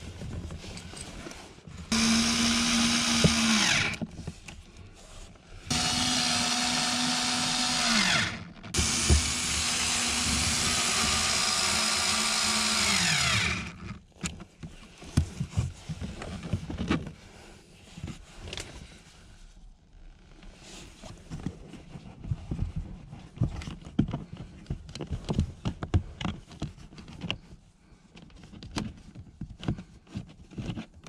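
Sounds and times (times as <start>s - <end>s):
electric screwdriver driving screws: 1.9s - 4.0s, 5.7s - 14.0s.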